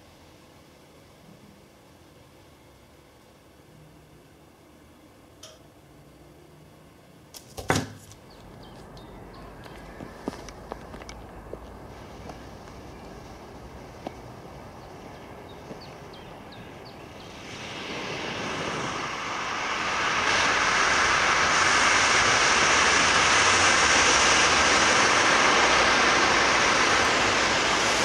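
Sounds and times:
smoke bomb burning with hiss: 9.5 - 28.0.

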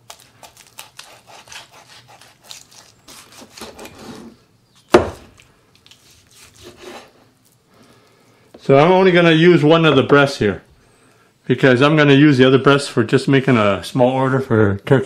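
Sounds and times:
cleaver scraping through meat: 0.1 - 4.4, 5.8 - 7.3
cleaver knock on cutting board: 5.0 - 5.2.

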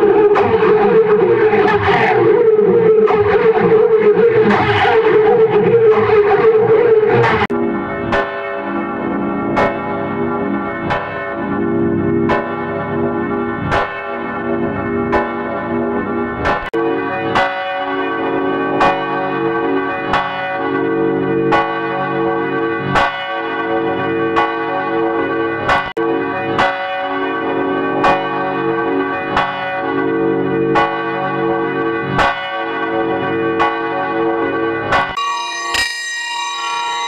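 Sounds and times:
church bell tolling: 0.0 - 37.0.

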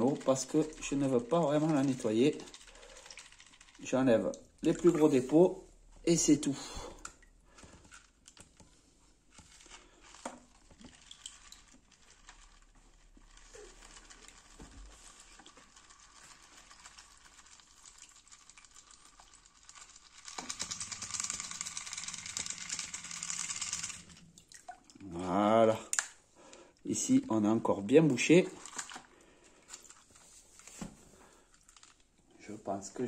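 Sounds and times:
soft water splashes: 24.4 - 25.2.

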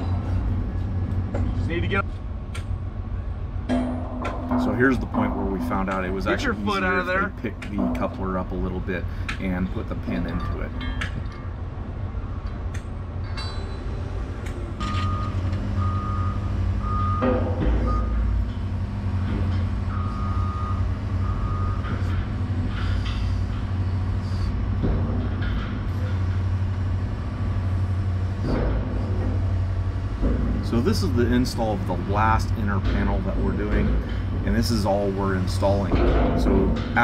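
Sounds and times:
diesel engine running: 0.0 - 10.4, 11.7 - 37.0
backup alarm beeping: 14.8 - 18.3, 19.9 - 22.0.

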